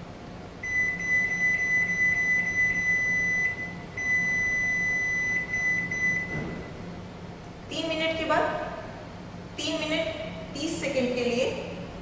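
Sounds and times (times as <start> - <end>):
microwave high beep: 0.6 - 6.8.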